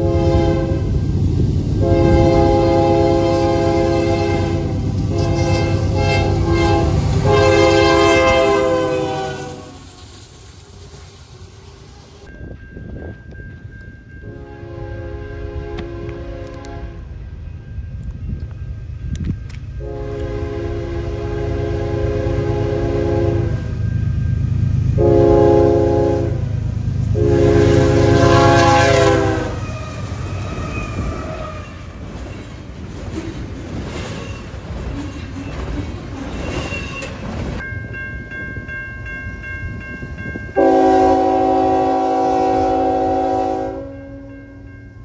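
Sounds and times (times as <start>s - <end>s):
locomotive air horn blasts: 0.0s - 1.0s, 1.8s - 9.8s, 14.3s - 17.1s, 19.8s - 23.8s, 25.0s - 26.5s, 27.1s - 31.8s, 40.6s - 44.4s
train rumble: 0.0s - 45.0s
level-crossing bell ringing: 37.6s - 40.7s.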